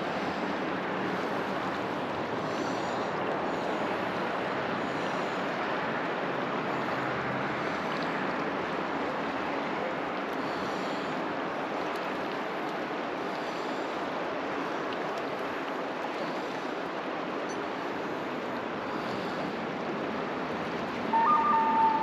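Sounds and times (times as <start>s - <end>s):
river water flowing over rocks: 0.0s - 22.0s
held high notes: 21.1s - 22.0s.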